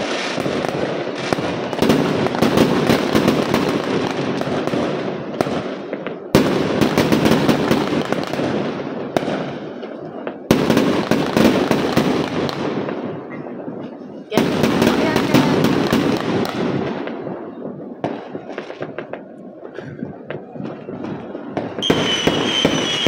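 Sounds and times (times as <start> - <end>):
loud firework bursts: 0.0 - 13.3, 14.0 - 23.0
fireworks crackling: 0.0 - 23.0.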